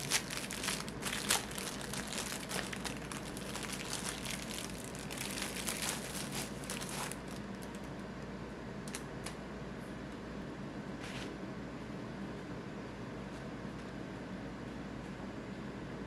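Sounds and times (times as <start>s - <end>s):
paper wrapping crinkling: 0.0s - 7.9s
air fryer humming: 0.0s - 16.0s.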